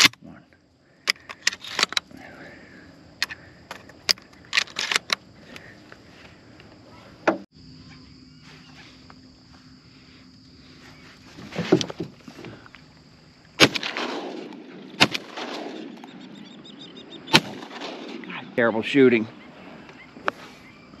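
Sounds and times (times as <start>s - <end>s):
gun handling clatter: 1.0s - 2.1s, 3.2s - 5.7s
shotgun shots: 13.6s - 16.4s, 17.2s - 18.6s.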